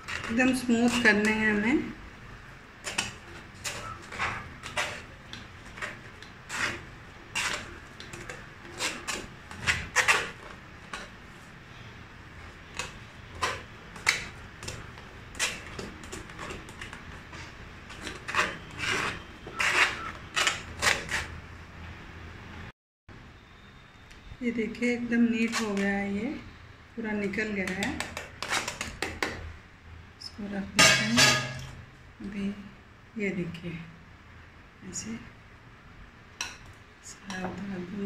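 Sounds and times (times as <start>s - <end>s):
masher scraping metal mesh strainer: 2.8s - 11.1s, 17.9s - 21.3s.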